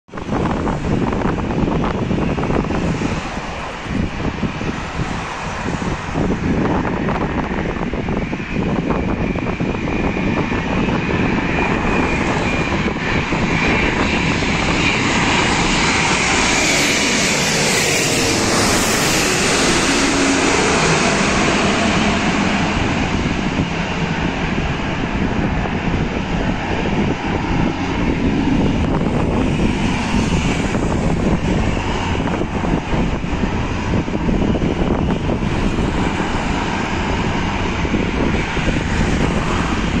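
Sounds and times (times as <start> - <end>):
jet airliner roar: 0.1 - 40.0.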